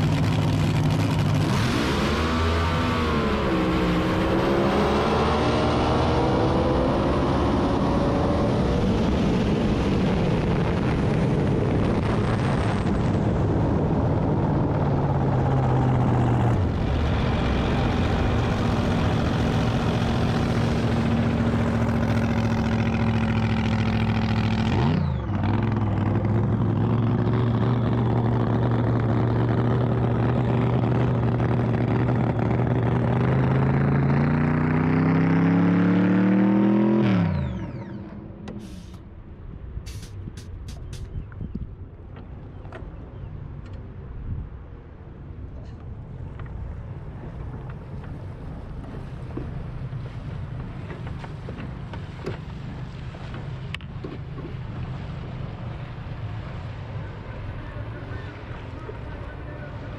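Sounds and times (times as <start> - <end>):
boat engine running: 0.0 - 59.9.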